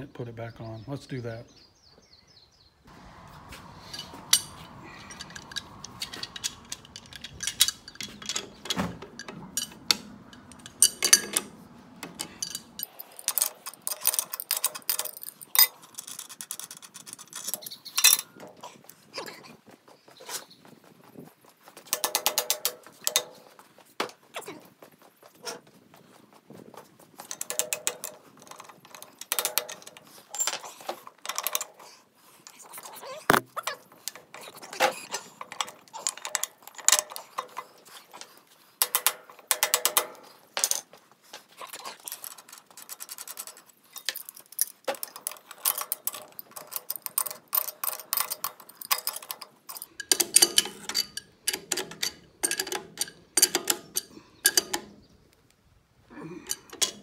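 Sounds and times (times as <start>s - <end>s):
ratchet clicking: 3.8s - 18.0s.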